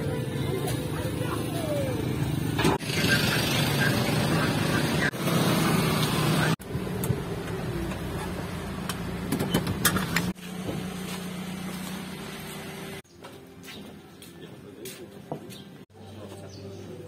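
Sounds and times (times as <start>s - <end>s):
engine running: 0.0s - 13.0s.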